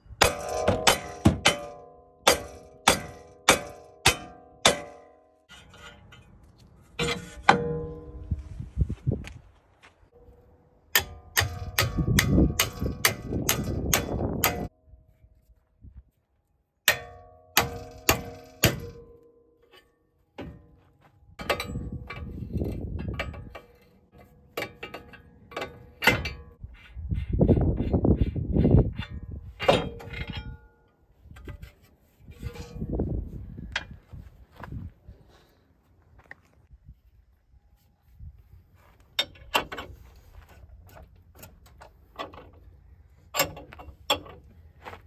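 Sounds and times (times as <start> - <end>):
metal-on-metal clangs: 0.2 - 8.3, 10.9 - 14.8, 16.8 - 26.6, 28.7 - 33.0, 39.2 - 40.0, 43.3 - 44.5.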